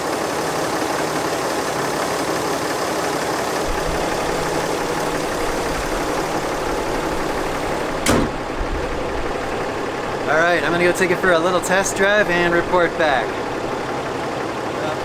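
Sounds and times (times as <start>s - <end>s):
diesel engine idling: 0.0s - 15.0s
car hood slamming shut: 6.8s - 8.5s.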